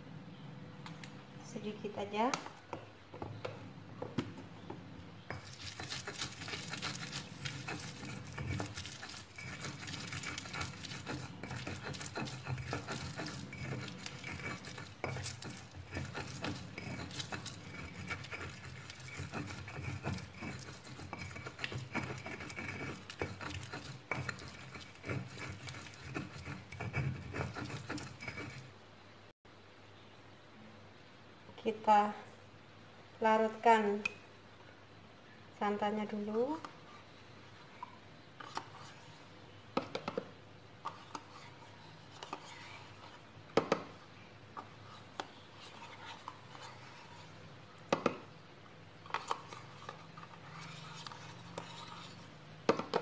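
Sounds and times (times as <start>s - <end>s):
pestle grinding in stone mortar: 5.2s - 28.7s.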